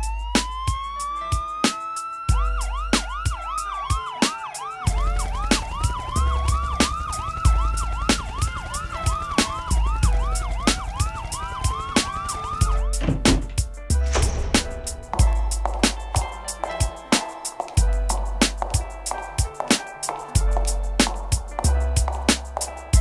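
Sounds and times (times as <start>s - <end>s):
siren sample wailing: 0.0s - 13.0s
deep bass: 4.9s - 11.5s, 12.5s - 16.4s, 17.8s - 19.1s, 20.4s - 22.3s
hip hop drum hits: 12.9s - 16.8s.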